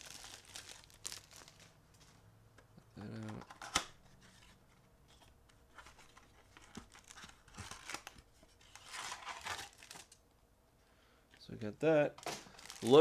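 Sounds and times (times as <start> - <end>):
plastic wrap crinkling and tearing: 0.0 - 1.8, 6.6 - 10.2, 12.2 - 13.0.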